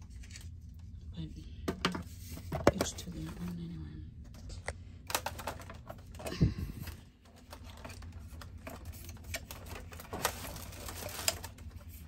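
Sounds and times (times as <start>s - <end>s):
plastic parts clicking: 5.1s - 6.3s.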